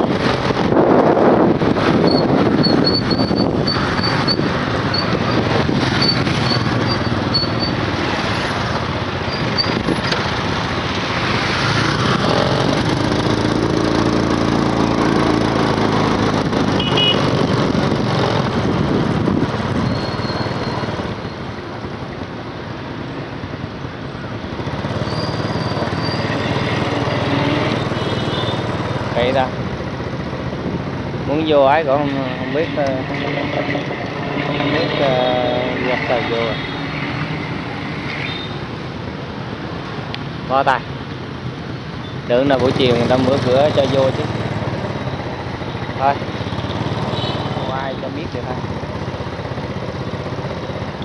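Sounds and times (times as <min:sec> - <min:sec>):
vehicle engine hum: 0:00.0 - 0:47.4
road traffic noise: 0:00.0 - 0:51.0.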